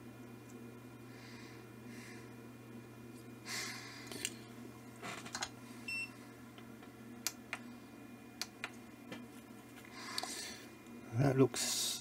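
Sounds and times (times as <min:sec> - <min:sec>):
steady low hum: 0:00.0 - 0:12.0
person breathing: 0:01.1 - 0:02.3, 0:03.4 - 0:04.5, 0:09.8 - 0:10.7.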